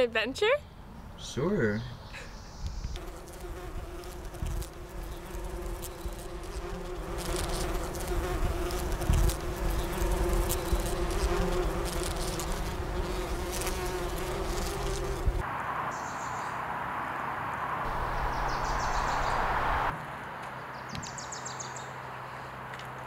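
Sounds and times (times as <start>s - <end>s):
bees buzzing: 2.9s - 15.5s, 17.8s - 19.9s
low rumble: 17.8s - 19.9s.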